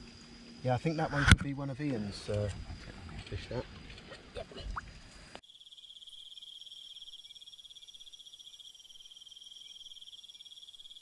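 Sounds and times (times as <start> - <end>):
high-pitched insect trill: 0.0 - 3.7, 5.4 - 11.0
mixed outdoor sound: 0.0 - 5.4.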